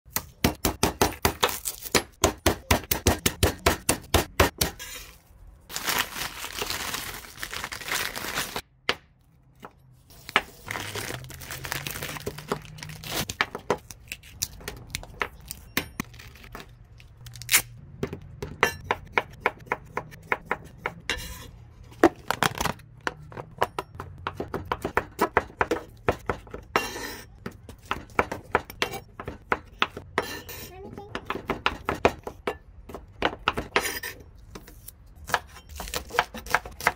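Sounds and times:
papery skins rustling and tearing: 0:05.1 - 0:08.6, 0:10.1 - 0:17.8
knife chopping on wooden board: 0:18.0 - 0:21.0.

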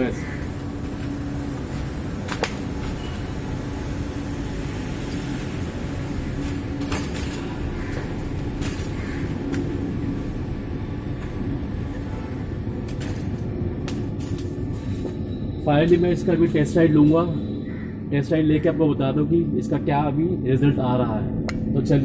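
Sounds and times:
low background rumble: 0:07.8 - 0:22.0.

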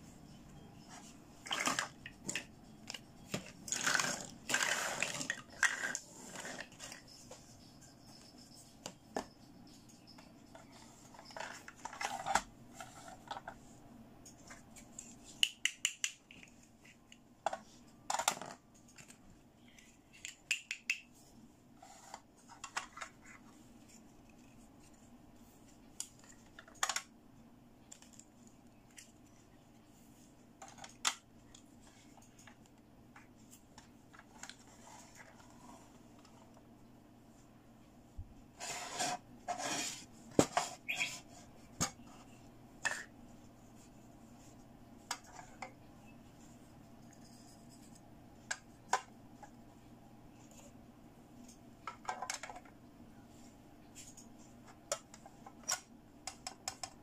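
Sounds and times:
scraping and rustling: 0:38.5 - 0:43.1.

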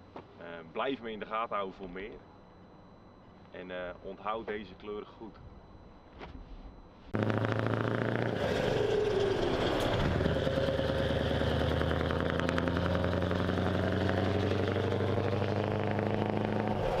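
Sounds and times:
diesel truck engine running: 0:07.2 - 0:17.0.

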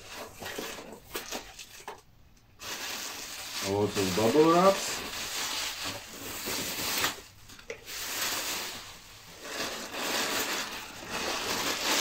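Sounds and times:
bubble wrap crinkling: 0:02.6 - 0:12.0.

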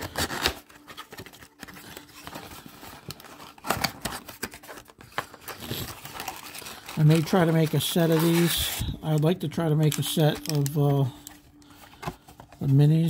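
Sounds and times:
cardboard box tearing open: 0:00.0 - 0:02.4.

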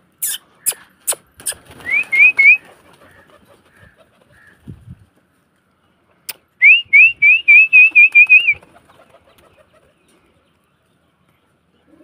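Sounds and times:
person whistling rising notes: 0:06.6 - 0:08.6.

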